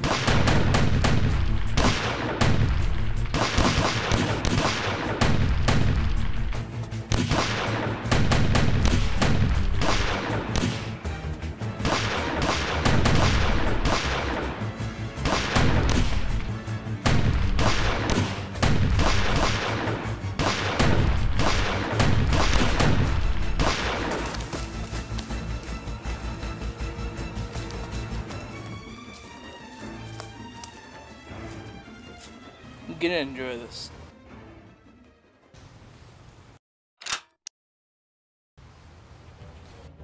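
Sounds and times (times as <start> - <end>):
pistol shots in rapid volleys: 0.0 - 6.5, 7.1 - 11.0, 11.8 - 24.4
music: 0.0 - 36.0, 39.2 - 40.0.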